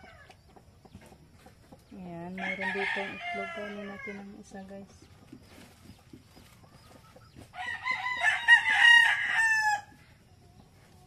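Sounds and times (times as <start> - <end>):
rooster crowing: 2.4 - 4.2, 7.5 - 10.0.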